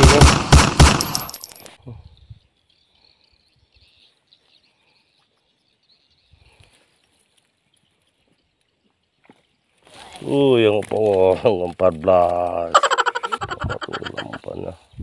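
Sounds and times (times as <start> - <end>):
faint high insect hum: 1.8 - 7.3.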